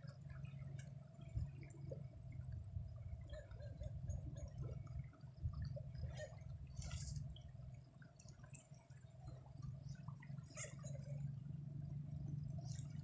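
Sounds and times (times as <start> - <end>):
low steady rumble: 0.0 - 13.0
river water flowing and lapping: 0.0 - 13.0
small splashes: 4.3 - 11.4.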